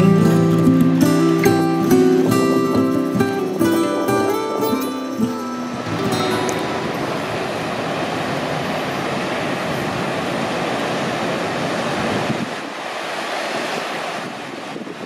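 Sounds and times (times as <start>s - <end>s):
moving water: 0.0s - 15.0s
wind rushing: 3.6s - 15.0s.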